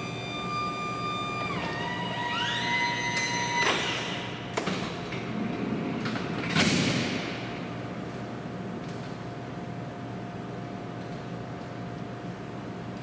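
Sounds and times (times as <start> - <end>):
electric motor whining: 0.0 - 4.3.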